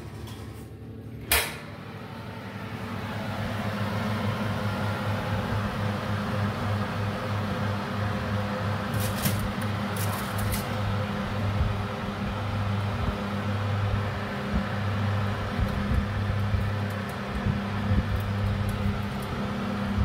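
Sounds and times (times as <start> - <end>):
oven fan motor humming: 0.0 - 20.0.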